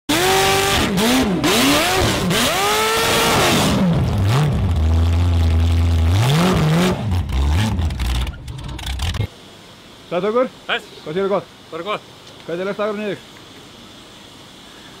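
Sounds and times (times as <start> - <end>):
race car engine revving: 0.1 - 9.3.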